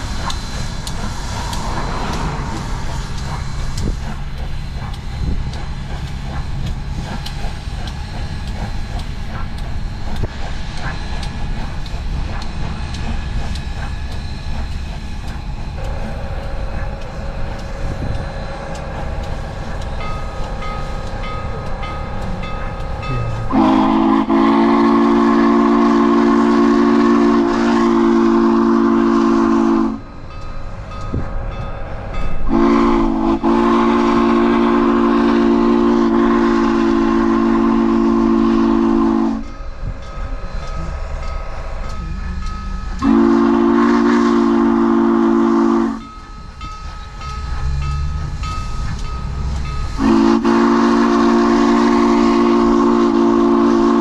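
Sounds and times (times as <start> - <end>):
locomotive rumble: 0.0 - 54.0
steam locomotive whistle blasts: 17.5 - 30.2, 32.4 - 39.6, 40.4 - 46.2, 49.6 - 54.0.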